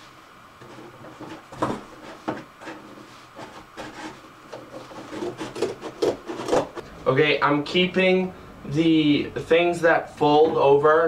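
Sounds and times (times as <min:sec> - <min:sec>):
scissors cutting cardboard: 0:03.4 - 0:06.8.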